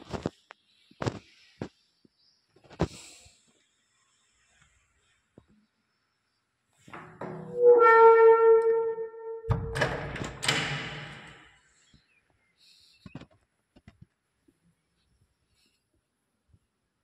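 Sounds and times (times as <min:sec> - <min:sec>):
door hinge creaking: 0:06.9 - 0:11.6
door thumping: 0:09.4 - 0:11.5
door latch clicking: 0:09.5 - 0:11.5.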